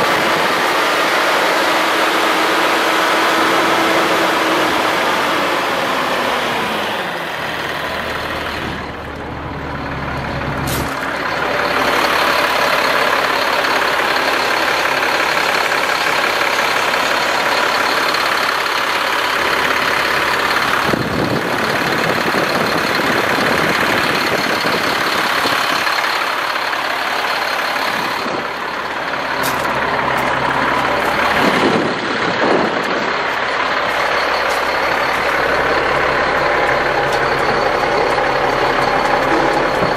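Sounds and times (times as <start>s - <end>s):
diesel truck engine running: 0.0s - 39.9s.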